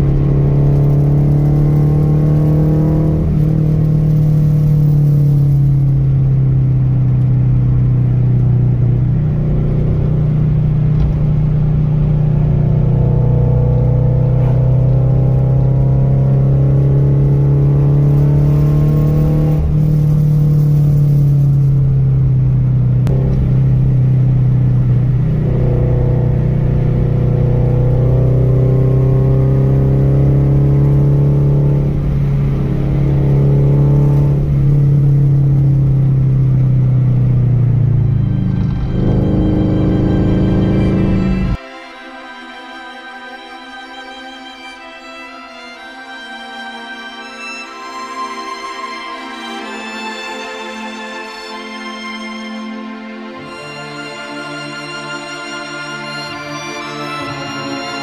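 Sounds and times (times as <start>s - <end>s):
vehicle engine running: 0.0s - 41.6s.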